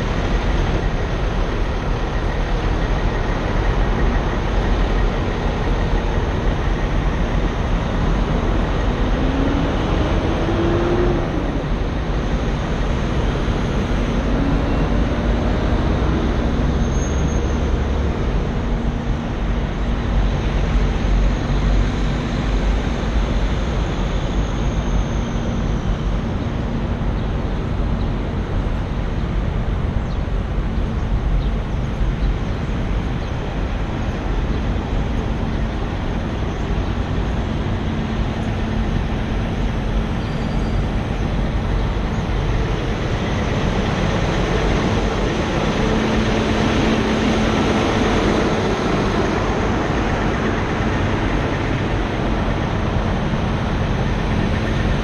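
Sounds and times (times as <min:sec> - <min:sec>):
low hum: 0:00.0 - 0:55.0
semi trucks idling: 0:00.0 - 0:55.0.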